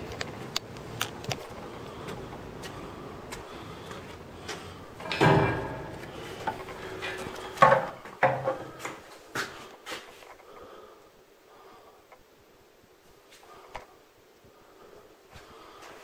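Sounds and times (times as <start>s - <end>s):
prison gate clanking: 5.0s - 7.9s.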